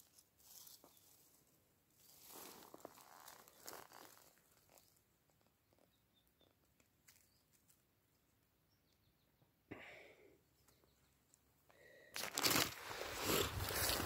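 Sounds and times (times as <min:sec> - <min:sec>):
crunching of dry undergrowth: 0:00.0 - 0:05.9, 0:12.1 - 0:14.0.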